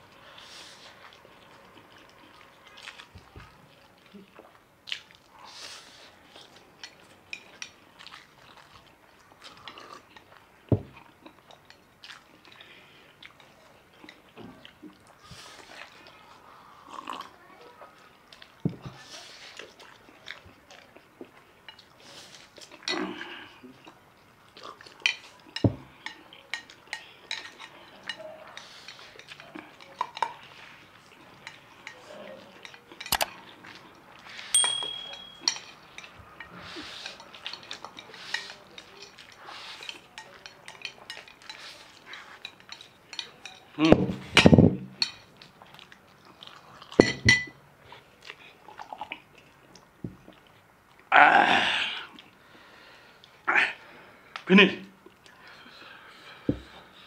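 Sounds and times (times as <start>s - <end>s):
people slurping noodles: 15.2s - 17.4s, 36.4s - 42.6s
chopsticks clicking on plates: 31.4s - 33.4s, 34.6s - 43.7s.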